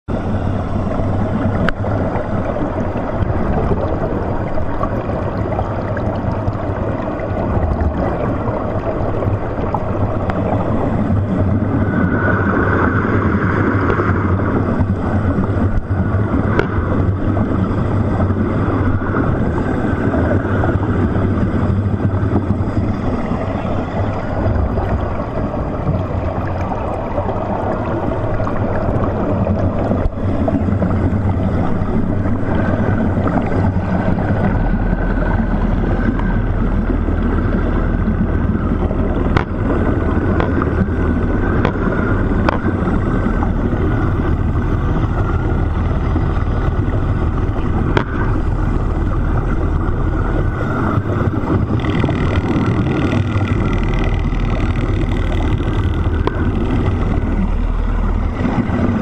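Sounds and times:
low underwater hum: 0.0 - 59.0
underwater rushing wash: 0.0 - 59.0.

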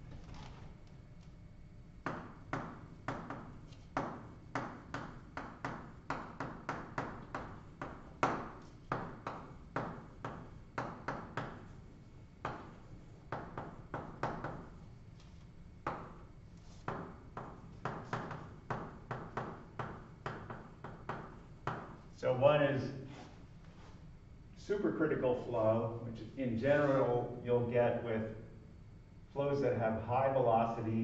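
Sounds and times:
chalk tapping on blackboard: 2.1 - 11.8, 15.8 - 22.0.

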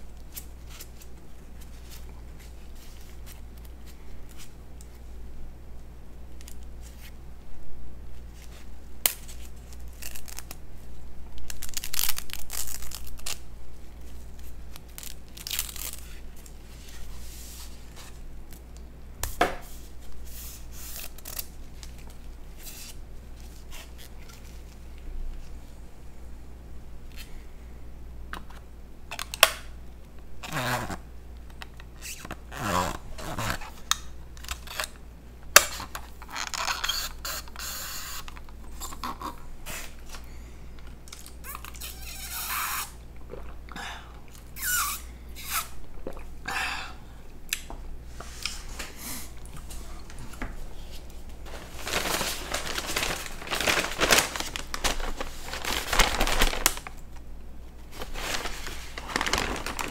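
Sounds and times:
rustling crinkling noise: 0.0 - 5.1, 8.1 - 25.8, 48.1 - 59.9.

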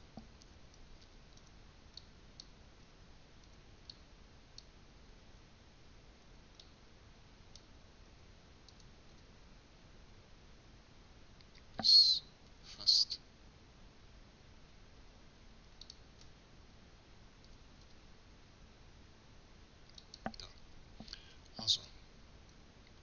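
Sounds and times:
mouse and keyboard clicks: 15.8 - 16.3, 19.9 - 21.2.

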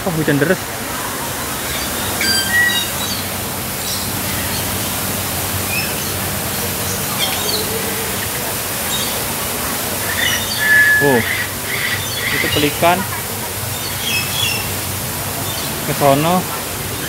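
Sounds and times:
heavy rain rushing: 0.0 - 17.0
waterfall: 0.0 - 17.0
bird chirps: 1.6 - 4.8, 10.0 - 12.9.

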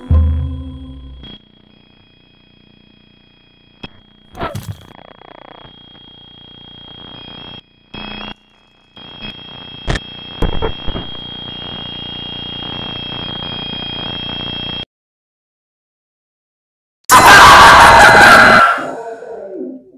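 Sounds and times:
steady high whine: 0.0 - 14.8
hissing static: 1.2 - 14.8.

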